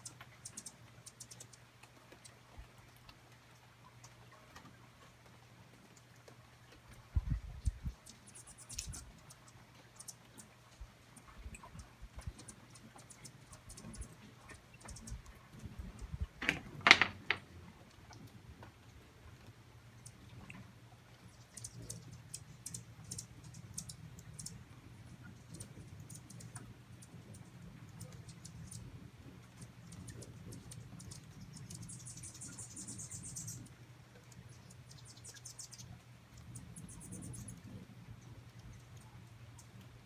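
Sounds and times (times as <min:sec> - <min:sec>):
hummingbird chip calls: 0:00.0 - 0:01.5, 0:08.0 - 0:10.5, 0:21.3 - 0:24.6, 0:29.6 - 0:33.8, 0:34.4 - 0:35.9, 0:36.6 - 0:37.6.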